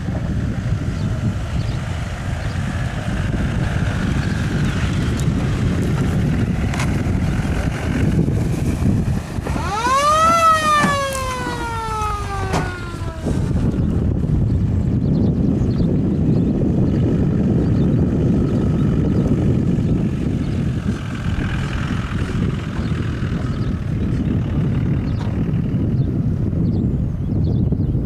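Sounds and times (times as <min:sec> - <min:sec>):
engine running low: 0:00.0 - 0:28.0
wind on microphone: 0:00.0 - 0:28.0
loud sliding pitched tone: 0:09.3 - 0:14.1.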